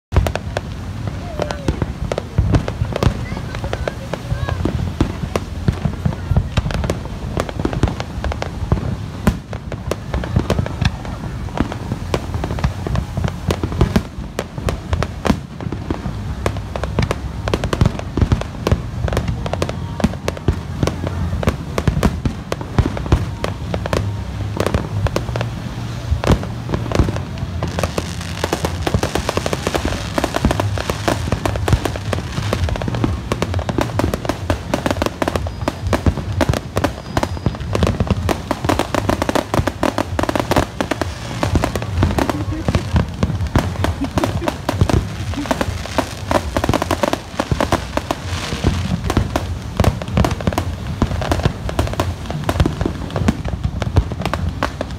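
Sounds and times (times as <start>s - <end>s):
fast fireworks crackling: 0.0s - 54.9s
fireworks bangs and pops: 0.0s - 54.9s.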